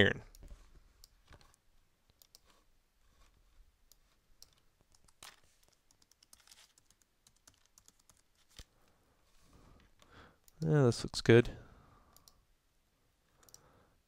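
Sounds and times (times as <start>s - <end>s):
typing on a computer keyboard: 3.9s - 8.4s.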